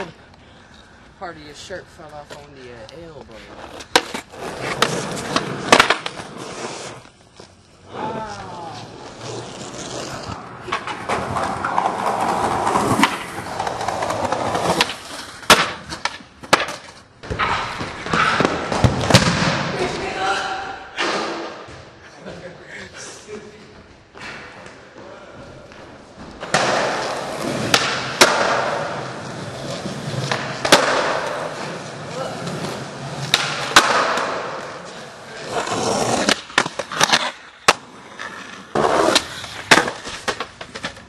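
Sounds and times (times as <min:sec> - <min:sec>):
skateboard wheels rolling on concrete: 0:00.0 - 0:20.2, 0:23.7 - 0:41.0
skateboard clacks: 0:03.8 - 0:06.3, 0:26.4 - 0:29.0, 0:30.2 - 0:31.5, 0:33.2 - 0:34.8.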